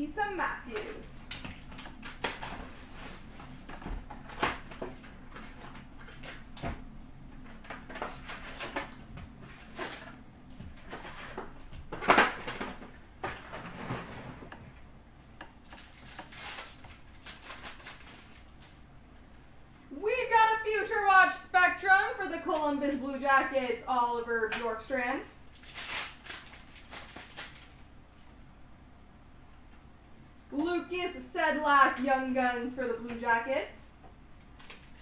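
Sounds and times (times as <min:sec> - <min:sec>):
cardboard and wrappers rustling: 0:00.7 - 0:14.6, 0:15.6 - 0:18.8, 0:25.5 - 0:27.9, 0:34.4 - 0:35.0
card pack ripping open: 0:15.6 - 0:18.5, 0:25.5 - 0:27.8, 0:34.5 - 0:35.0.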